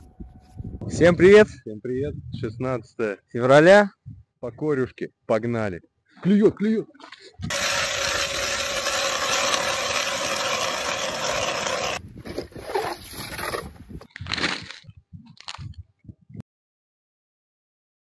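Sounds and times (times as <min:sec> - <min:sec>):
ice auger grinding through ice: 0:07.5 - 0:13.7.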